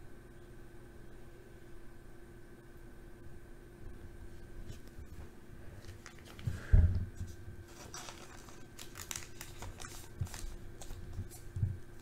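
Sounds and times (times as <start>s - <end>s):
plastic card sleeve rustling: 5.8s - 6.6s, 7.2s - 12.0s.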